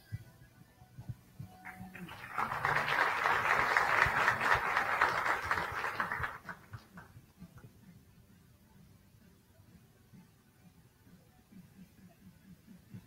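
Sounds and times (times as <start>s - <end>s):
audience applauding: 1.7s - 7.1s.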